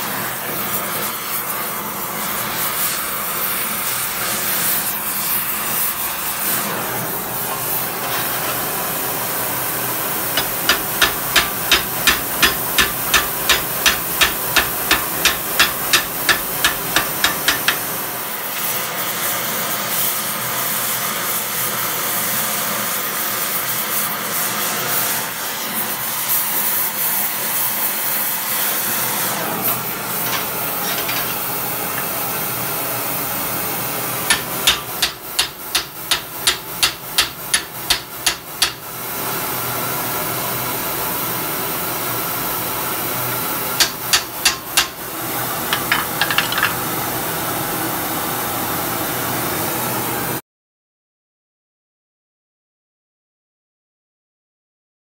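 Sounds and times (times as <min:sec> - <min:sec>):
torch hissing: 0:00.0 - 0:40.2
hammer striking rivet on anvil: 0:10.4 - 0:18.0, 0:34.3 - 0:38.9, 0:43.8 - 0:45.0, 0:45.7 - 0:46.8.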